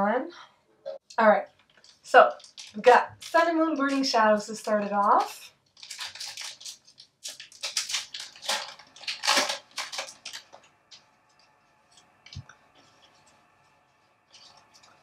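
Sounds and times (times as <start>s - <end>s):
foil wrapper crinkling and tearing: 1.6s - 4.0s, 5.0s - 11.0s.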